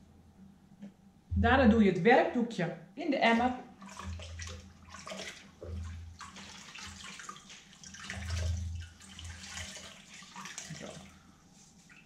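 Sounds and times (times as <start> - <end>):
low rumble: 1.3 - 2.0
cloth sloshing in bucket of water: 3.2 - 12.0.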